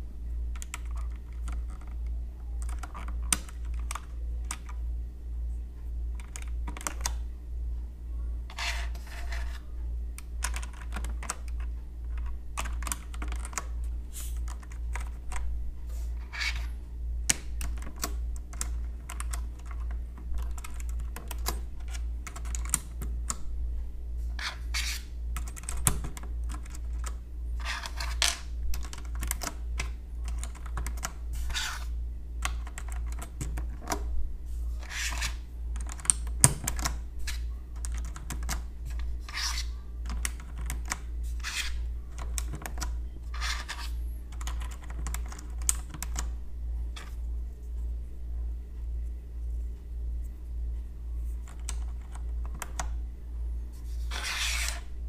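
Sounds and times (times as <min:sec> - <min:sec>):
steady low hum: 0:00.0 - 0:55.0
keycaps clicking and clacking: 0:00.5 - 0:04.8, 0:06.1 - 0:07.2, 0:10.2 - 0:15.4, 0:17.3 - 0:23.4, 0:24.4 - 0:34.1, 0:34.8 - 0:47.2, 0:51.4 - 0:53.0.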